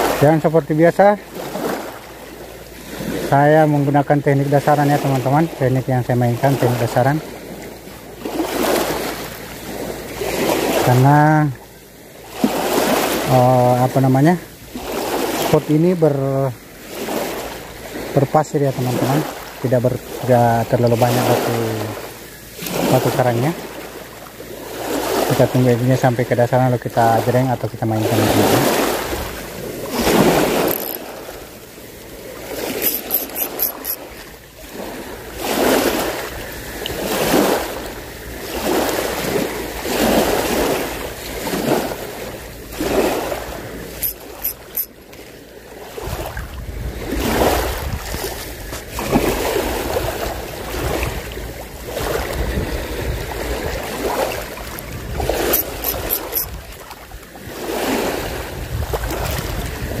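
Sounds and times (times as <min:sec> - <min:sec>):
small waves washing on beach: 0:00.0 - 1:00.0
wind buffeting microphone: 0:46.0 - 0:54.0, 0:54.7 - 0:55.5, 0:58.2 - 1:00.0.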